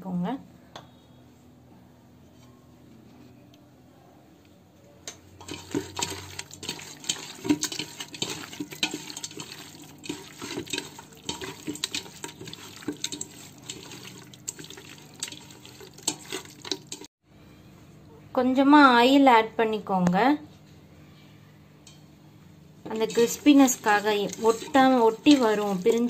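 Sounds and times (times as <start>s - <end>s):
raw chicken squelching in marinade: 5.4s - 17.1s, 22.9s - 26.0s.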